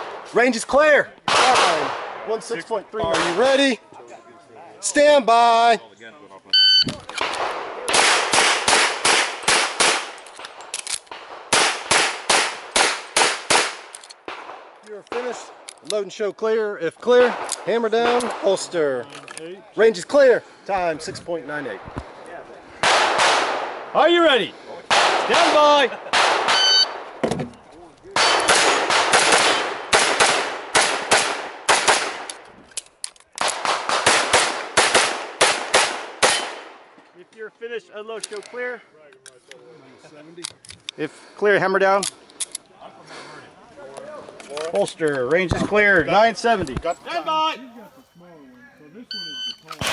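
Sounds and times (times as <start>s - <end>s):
pistol shots: 1.3s - 2.4s, 7.1s - 15.6s, 22.8s - 23.9s, 24.9s - 27.2s, 28.2s - 32.4s, 33.4s - 36.9s.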